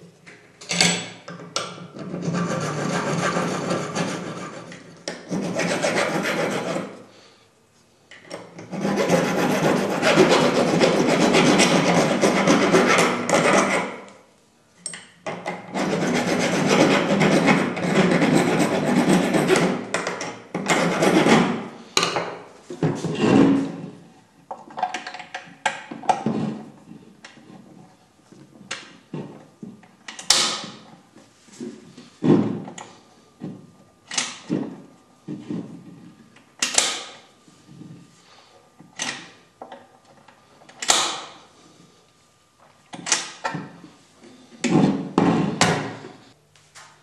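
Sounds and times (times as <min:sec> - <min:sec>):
hand file rasping on metal: 0:02.0 - 0:07.0, 0:08.6 - 0:14.1, 0:15.7 - 0:19.9, 0:20.7 - 0:21.7.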